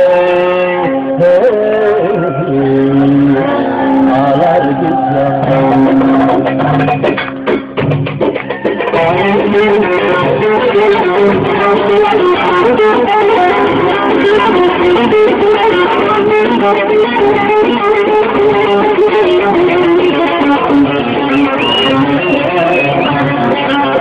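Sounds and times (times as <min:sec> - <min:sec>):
amplified saz folk dance tune: 0:00.0 - 0:24.0.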